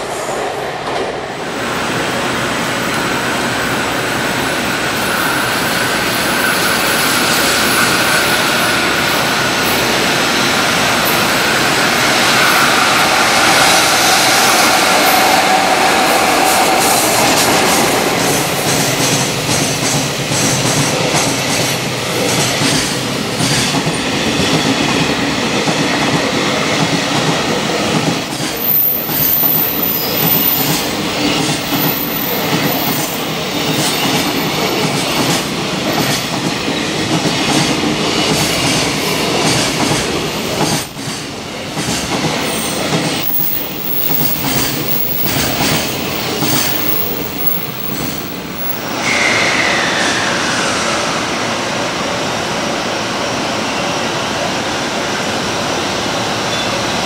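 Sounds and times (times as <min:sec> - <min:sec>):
train wheels clattering over rail joints: 0:30.2 - 0:49.0.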